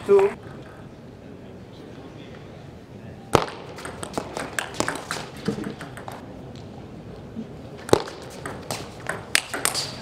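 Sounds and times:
table tennis ball clicking: 7.9 - 10.0.

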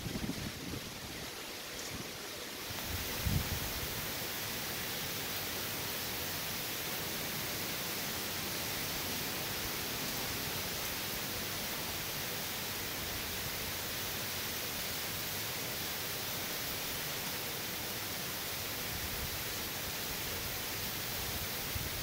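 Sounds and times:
heavy wind-driven rain: 0.0 - 22.0.

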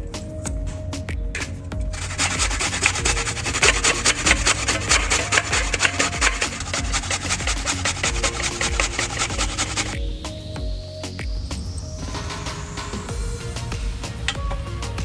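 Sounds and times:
coconut scraped on a metal grater: 1.9 - 10.0.

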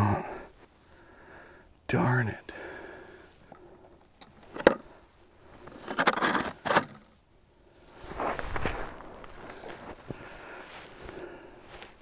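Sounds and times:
clothing rustling and snow scraping: 7.7 - 12.0.

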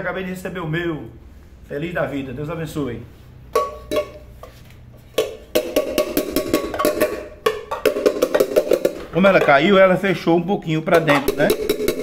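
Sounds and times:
metal rim striking anvil: 3.5 - 4.3, 5.2 - 9.7, 11.1 - 12.0.

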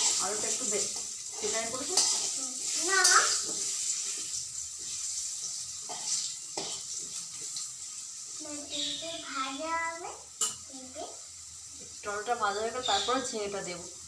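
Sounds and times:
potato wedges sizzling in oil: 0.0 - 14.0
spatula scraping and knocking on pan: 0.9 - 7.6.

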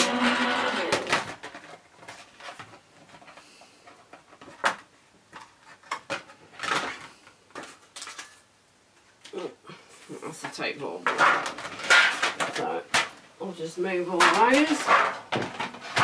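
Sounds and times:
clicks and clatter of sheets: 11.1 - 13.2, 14.2 - 16.0.

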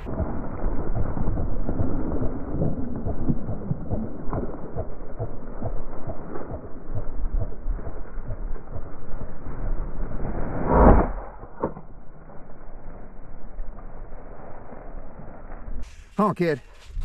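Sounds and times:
low rumble: 0.0 - 17.0
dry stalks rustling: 12.3 - 17.0.

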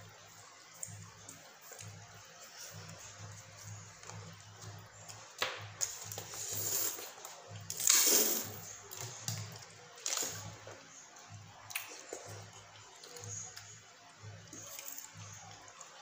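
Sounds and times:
noodles slurped and chewed: 6.0 - 10.6.

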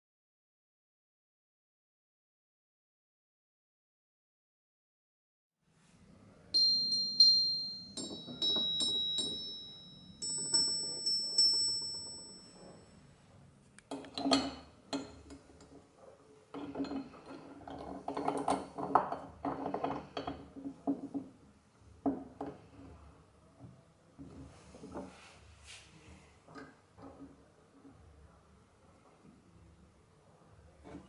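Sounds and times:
metal parts ringing when struck: 6.6 - 12.8.

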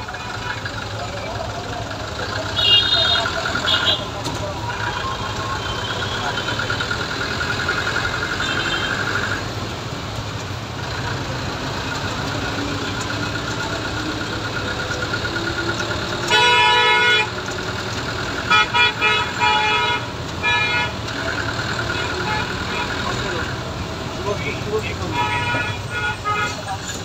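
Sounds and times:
engines and road noise: 0.0 - 27.0
vehicle horn blasts: 16.3 - 17.3.

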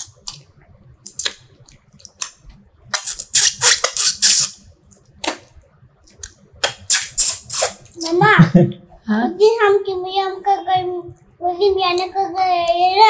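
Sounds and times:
person chewing food: 0.0 - 7.7
mouth clicks and lip smacks: 0.0 - 8.2.

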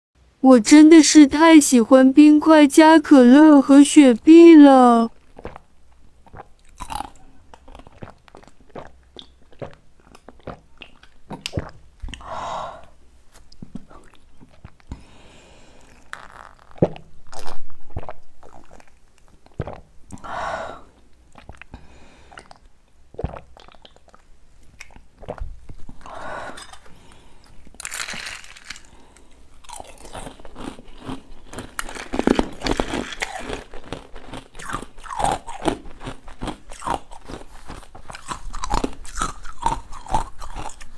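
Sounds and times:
sipping and gulping drink: 5.3 - 40.9
ice cubes crunching: 26.5 - 40.9.

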